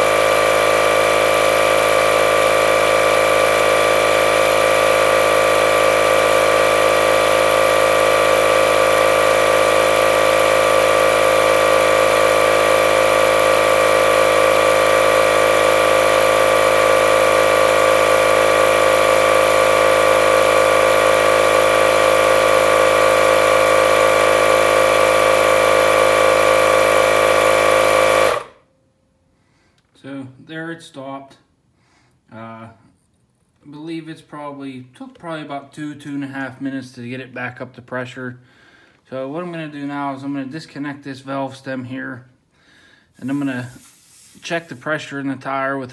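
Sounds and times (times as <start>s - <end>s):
tyre inflator compressor running: 0.0s - 28.7s, 42.8s - 45.0s.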